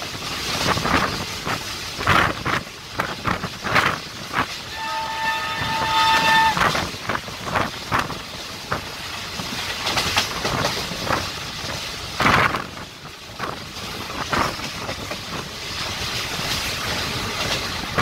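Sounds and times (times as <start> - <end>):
train wheels clickety-clack: 0.0 - 18.0
train horn blast: 4.7 - 6.8.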